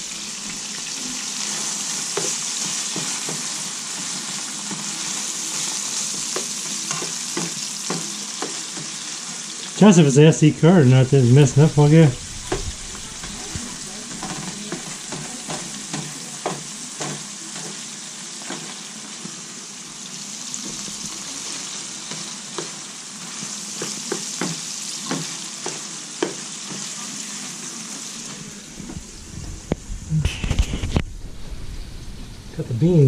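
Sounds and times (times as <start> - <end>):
meat sizzling in a frying pan: 0.0 - 30.8
spatula scraping and tapping: 1.4 - 9.1, 12.4 - 17.8, 20.6 - 27.0.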